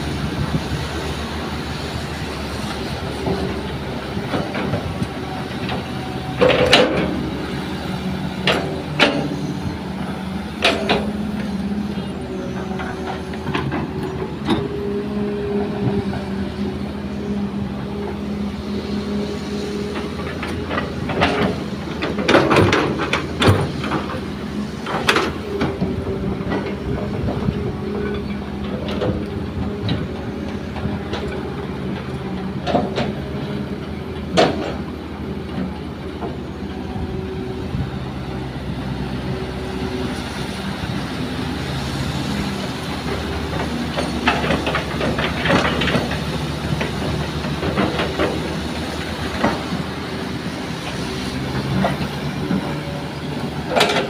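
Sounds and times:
heavy diesel engines running: 0.0 - 54.0
metal clanks and knocks: 5.6 - 7.3, 8.4 - 9.4, 10.6 - 11.2, 53.7 - 54.0.

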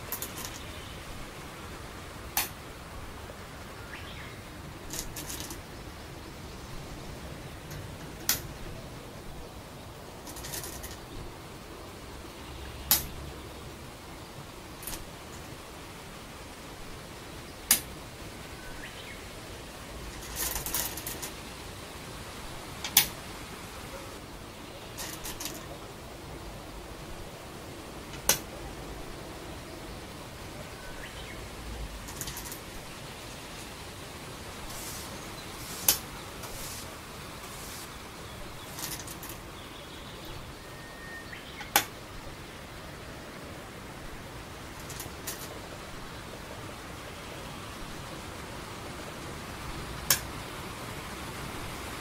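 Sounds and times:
rattle of stones: 0.0 - 0.7, 4.8 - 5.6, 10.2 - 11.1, 14.8 - 15.1, 20.1 - 21.4, 24.9 - 25.8, 28.1 - 28.5, 32.0 - 32.9, 34.6 - 39.4, 44.8 - 45.6
tape hiss: 0.0 - 52.0
stones clacking on wooden board: 10.3 - 11.0, 20.2 - 21.4, 25.0 - 25.7, 38.6 - 39.4.

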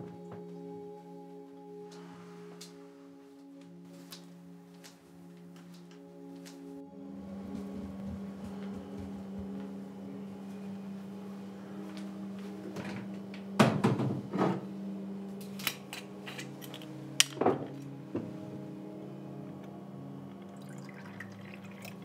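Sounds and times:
steady low hum: 4.4 - 20.4.

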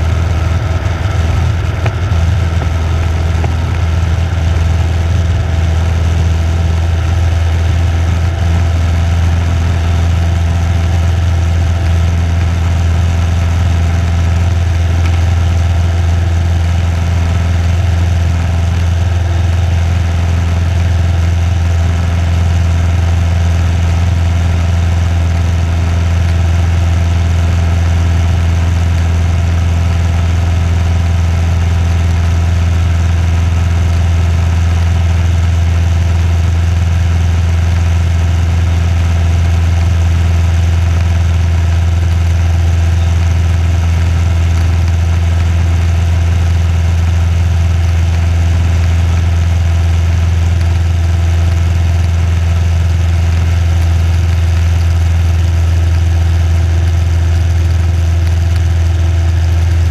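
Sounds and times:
light aircraft engine and propeller: 0.0 - 59.9.

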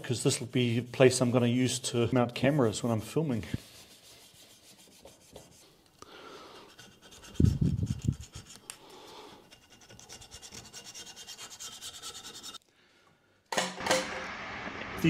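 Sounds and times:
razor blade scraping metal: 9.4 - 12.6.

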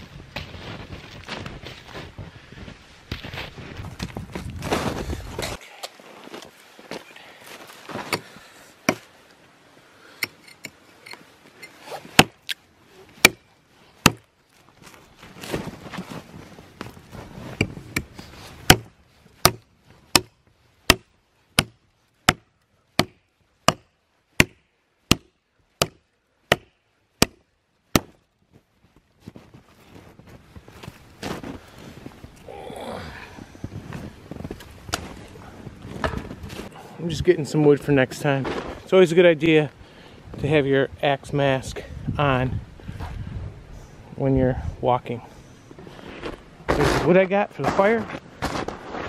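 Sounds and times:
axe chopping log: 12.2 - 12.6, 13.2 - 13.4, 14.0 - 14.3, 18.7 - 20.3, 20.9 - 28.2.

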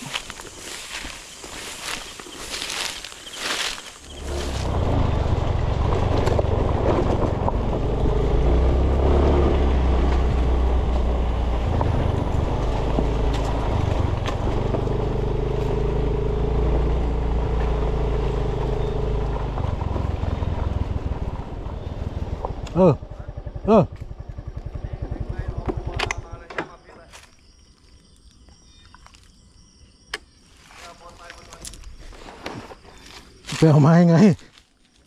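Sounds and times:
small motorcycle engine running: 2.6 - 26.4
wind rumbling on microphone: 4.0 - 14.9.

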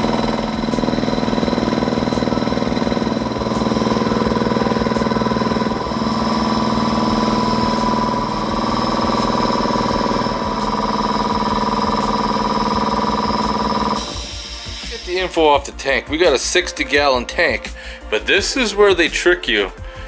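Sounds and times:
air compressor pump running: 0.0 - 15.3.

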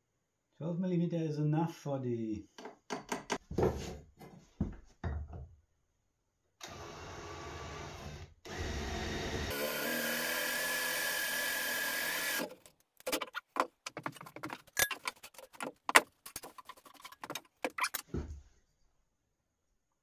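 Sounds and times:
cordless drill whining: 6.6 - 12.6
clicks and clinks of handling: 13.8 - 18.0.

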